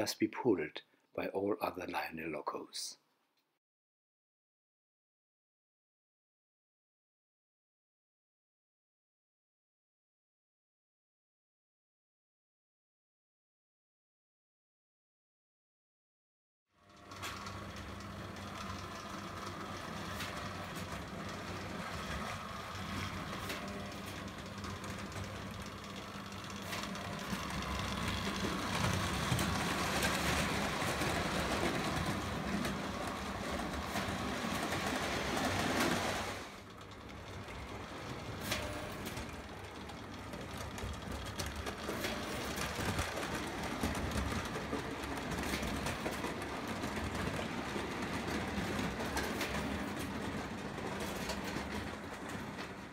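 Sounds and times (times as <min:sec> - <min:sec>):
toy train motor hum: 0:16.8 - 0:52.8
wheels clicking along rails: 0:16.8 - 0:52.9.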